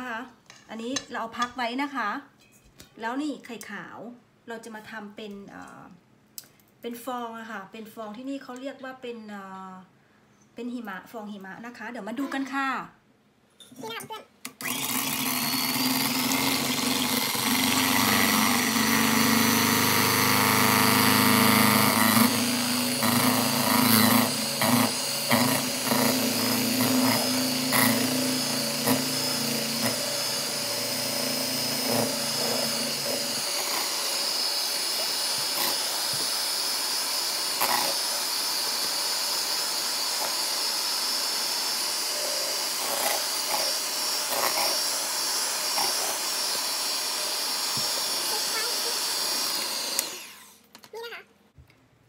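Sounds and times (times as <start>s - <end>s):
electric hand mixer whining: 14.6s - 50.7s.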